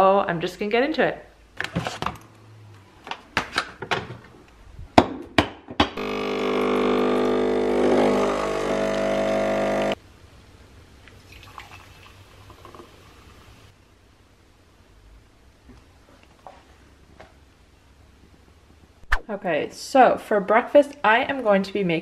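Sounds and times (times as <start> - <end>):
espresso machine pump buzzing: 6.0 - 10.0
coffee pouring into mug: 11.1 - 13.4.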